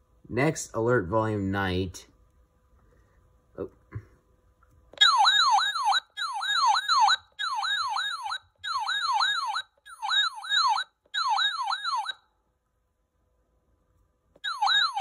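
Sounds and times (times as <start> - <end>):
siren-like alert tone warbling: 5.0 - 12.2, 14.4 - 15.0.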